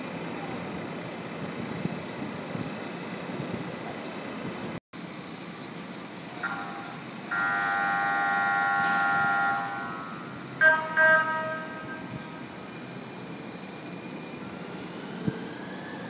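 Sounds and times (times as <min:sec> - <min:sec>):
train horn blasts: 0:06.4 - 0:12.6.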